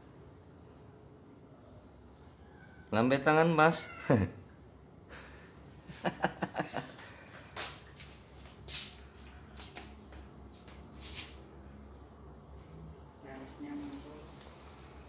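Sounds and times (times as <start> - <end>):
short rustling hisses: 7.6 - 9.9, 10.9 - 11.4.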